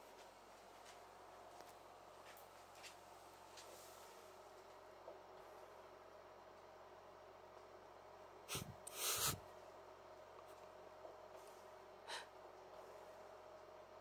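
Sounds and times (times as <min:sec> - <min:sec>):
faint steady hum: 0:00.0 - 0:14.0
person sniffing: 0:08.5 - 0:09.4.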